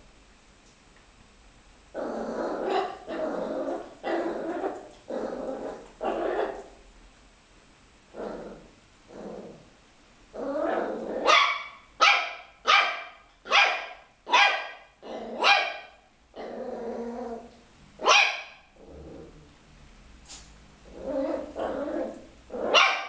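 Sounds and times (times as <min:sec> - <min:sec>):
puppy growling: 0:01.9 - 0:06.8, 0:08.1 - 0:11.4, 0:15.0 - 0:15.5, 0:16.3 - 0:17.6, 0:18.6 - 0:19.7, 0:20.8 - 0:23.0
puppy yapping barks: 0:11.2 - 0:16.0, 0:18.0 - 0:18.7, 0:22.7 - 0:23.0.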